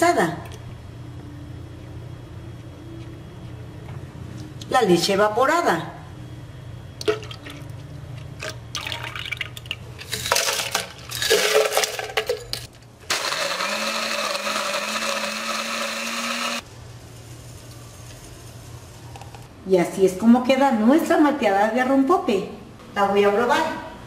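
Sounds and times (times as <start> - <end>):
liquid pouring: 7.0 - 10.8
blender running: 13.1 - 16.6.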